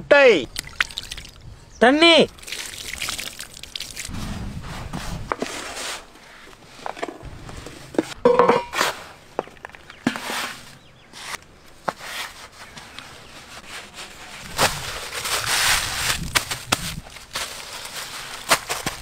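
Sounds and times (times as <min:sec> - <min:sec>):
foil crinkling: 0:13.4 - 0:19.0.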